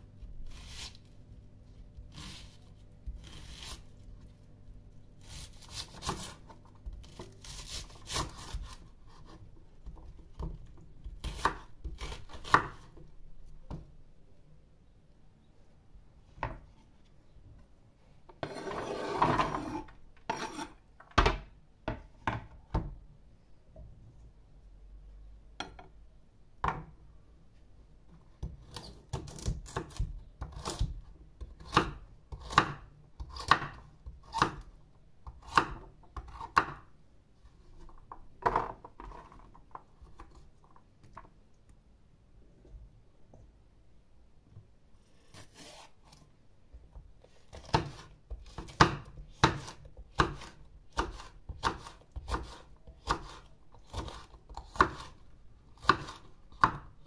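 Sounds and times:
food scraped into metal tray: 0:18.4 - 0:20.8
knife chopping on wooden board: 0:47.5 - 0:55.1, 0:55.8 - 0:56.8.

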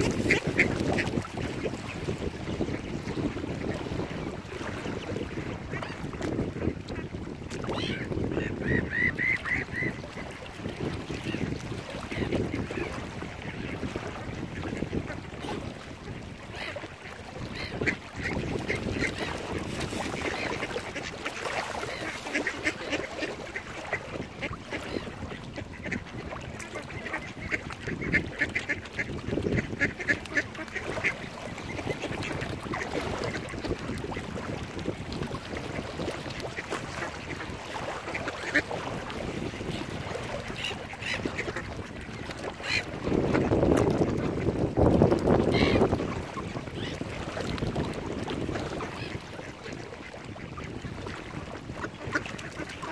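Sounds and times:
waterfowl calling: 0:00.0 - 0:03.1, 0:05.6 - 0:14.0, 0:14.6 - 0:34.5, 0:35.5 - 0:43.5, 0:45.4 - 0:47.1
wind buffeting microphone: 0:00.0 - 0:52.9.

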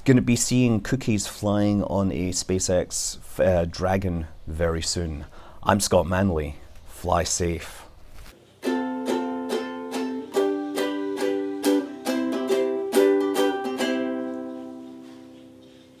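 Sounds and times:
ukulele strumming chords: 0:08.6 - 0:15.3.

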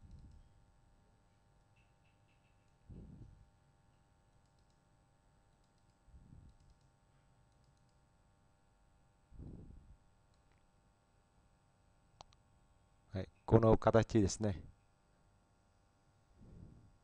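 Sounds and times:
computer mouse clicks: 0:00.0 - 0:00.5, 0:04.3 - 0:04.8, 0:05.5 - 0:08.0.

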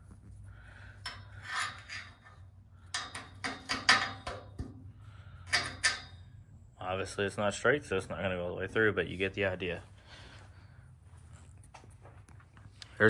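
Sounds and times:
metal bolt scraping in sleeve: 0:00.9 - 0:04.8, 0:05.4 - 0:06.2.

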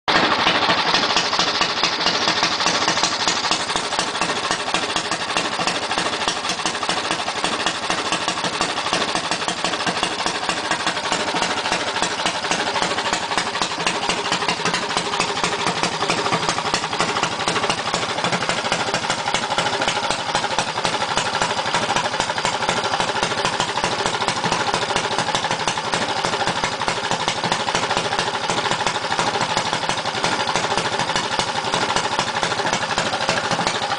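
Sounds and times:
kart engine running steadily: 0:00.0 - 0:33.9.

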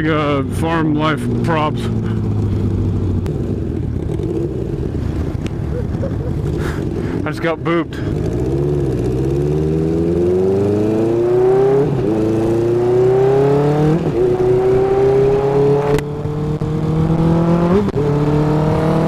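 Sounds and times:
motorcycle engine accelerating: 0:00.0 - 0:19.0.

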